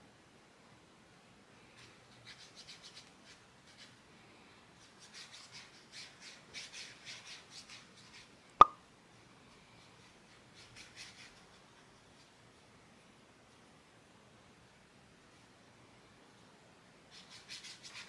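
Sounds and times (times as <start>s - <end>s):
brush scrubbing on rough paper: 4.8s - 8.4s, 17.1s - 18.0s.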